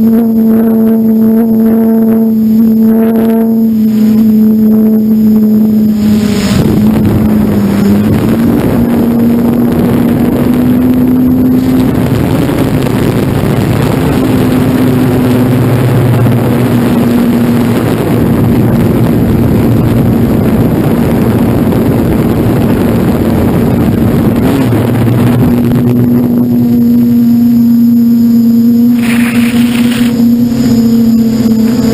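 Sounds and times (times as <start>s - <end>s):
wind rushing over microphone: 0.0s - 31.9s
model aircraft motor and propeller: 26.5s - 31.9s.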